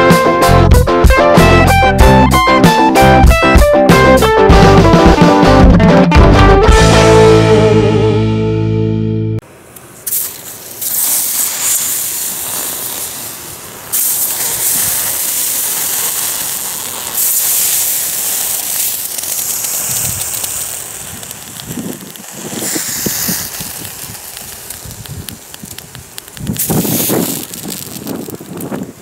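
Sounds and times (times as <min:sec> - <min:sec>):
steam hissing: 0:09.8 - 0:29.0
snow crunching: 0:10.0 - 0:29.0.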